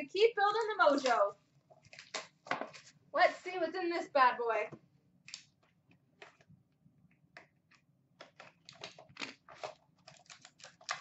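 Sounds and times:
packaging rustling and crinkling: 0:00.5 - 0:03.6, 0:08.2 - 0:11.0.

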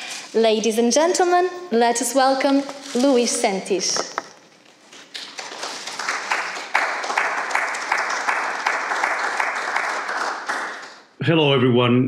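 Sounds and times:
audience applause: 0:05.4 - 0:11.1.

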